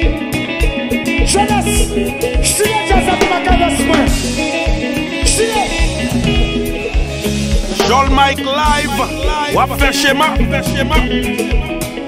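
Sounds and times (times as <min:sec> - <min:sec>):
dance music with steady beat: 0:01.3 - 0:11.7.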